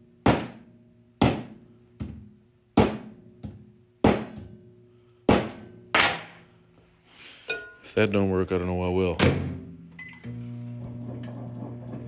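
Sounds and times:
metallic ring from bench: 7.5 - 7.9.

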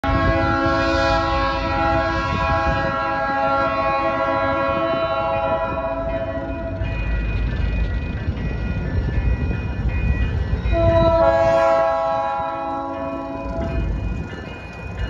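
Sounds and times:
locomotive air horn chord: 0.0 - 6.8, 10.7 - 13.8.

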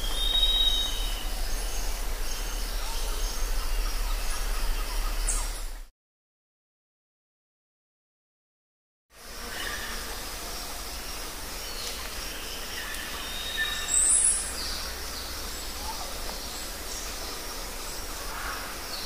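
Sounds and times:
loud high bird chirp: 0.0 - 5.7
background hiss: 9.2 - 19.0.

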